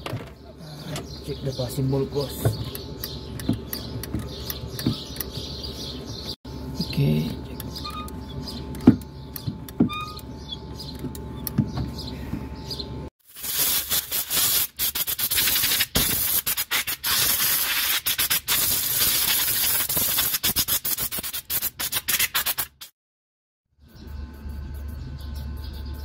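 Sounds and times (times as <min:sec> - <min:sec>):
pedal squeaks and clicks: 0:02.3 - 0:05.6, 0:07.6 - 0:12.0.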